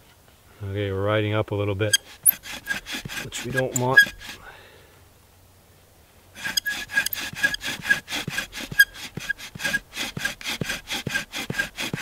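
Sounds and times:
bow drill squeak: 1.9s - 4.4s, 6.4s - 10.4s
bow drill rasping: 1.9s - 4.5s, 6.4s - 12.0s.

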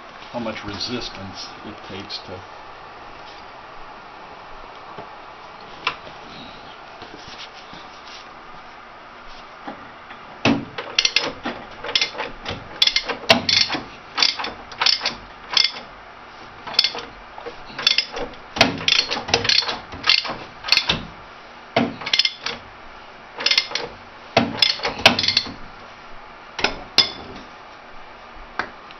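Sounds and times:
ratchet wrench clicking: 11.9s - 15.8s, 17.8s - 18.2s, 22.1s - 22.5s.

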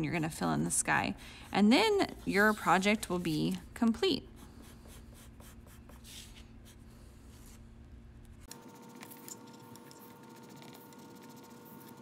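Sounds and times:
pencil scratching on paper: 1.5s - 3.6s, 4.3s - 6.8s, 8.6s - 12.0s.

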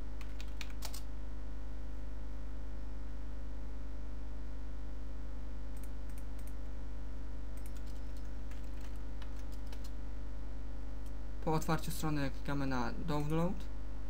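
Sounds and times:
low electrical hum: 0.0s - 14.0s
computer keyboard typing: 0.2s - 1.1s, 5.8s - 6.6s, 7.6s - 10.0s.

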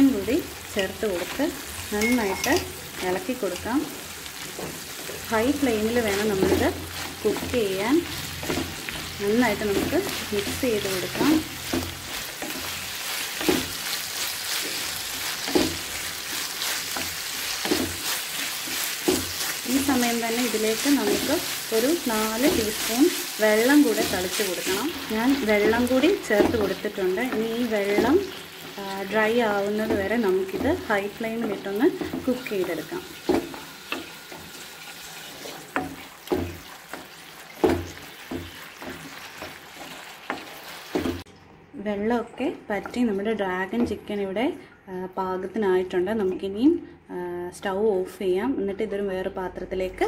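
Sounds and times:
food sizzling in a pan: 0.0s - 41.3s
spatula scraping a pan: 6.0s - 28.8s.

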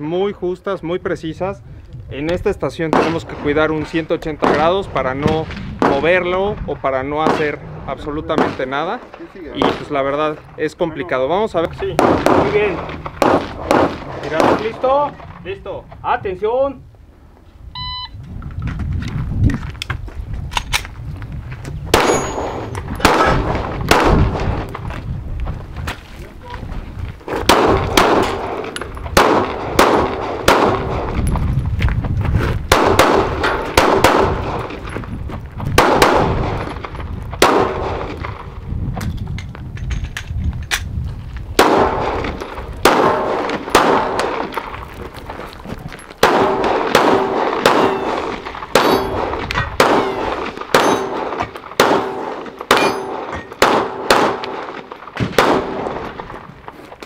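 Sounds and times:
pistol shots: 2.8s - 6.2s, 7.2s - 7.6s, 8.3s - 8.9s, 9.6s - 10.2s, 11.8s - 15.1s, 21.9s - 24.7s, 27.4s - 31.2s, 32.7s - 34.8s, 35.8s - 38.3s, 41.6s - 44.7s, 46.2s - 56.2s.

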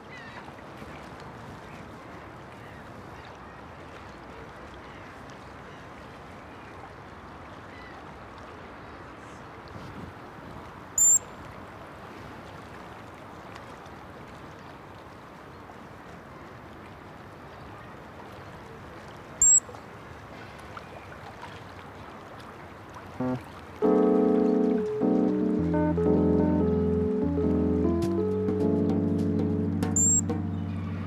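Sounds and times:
rushing water: 0.0s - 31.0s
sharp high-pitched chirp: 11.0s - 11.3s, 29.9s - 30.3s.

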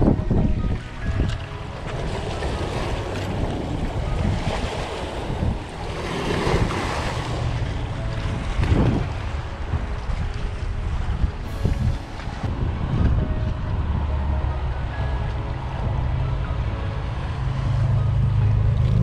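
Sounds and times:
wind buffeting microphone: 0.0s - 19.0s
small waves washing against rocks: 1.8s - 9.5s.

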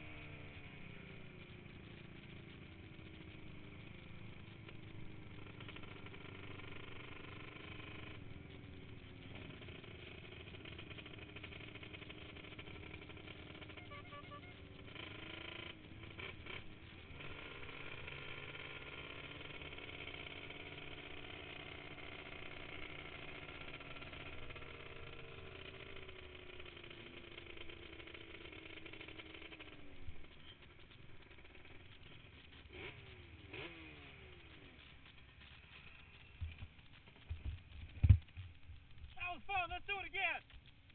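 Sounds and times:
two-stroke quad engine running: 0.0s - 40.9s
throttle blips: 13.7s - 14.7s.

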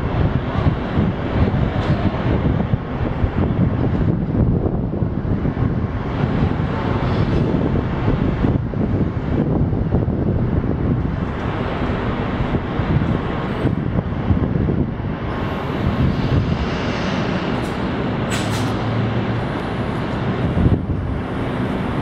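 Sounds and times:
traffic hum: 0.0s - 22.0s
wind on microphone: 0.0s - 22.0s
brief hiss: 16.6s - 18.8s.

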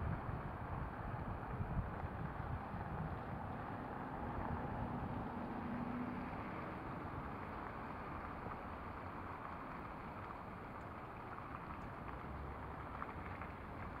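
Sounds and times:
wind rumble on microphone: 0.0s - 8.3s
distant city traffic hum: 0.0s - 14.0s.

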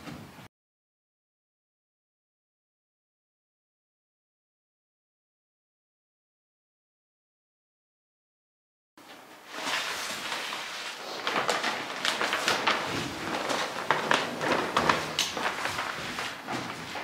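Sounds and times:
plastic sheeting crinkling: 9.1s - 17.0s.

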